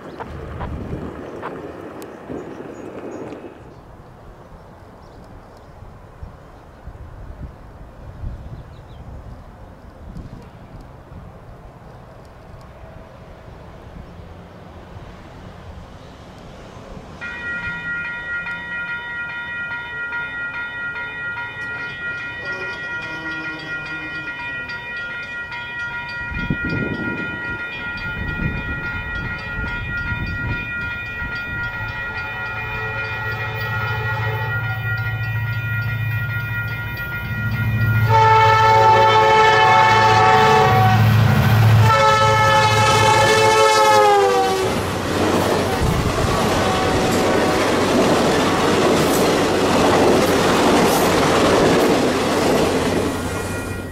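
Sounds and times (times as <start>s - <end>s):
locomotive engine and wheels rumbling: 0.0s - 53.9s
train air horn: 22.4s - 24.4s, 32.3s - 34.8s, 38.0s - 44.9s, 46.2s - 47.8s.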